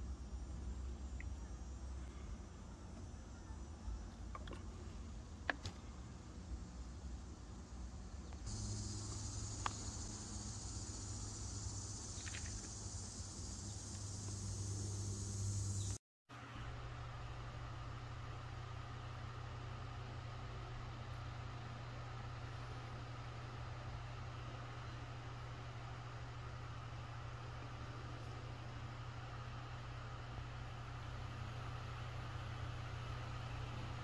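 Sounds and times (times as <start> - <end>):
low hum: 0.0 - 16.0
low room hiss: 0.0 - 34.0
high-pitched insect drone: 8.5 - 16.0.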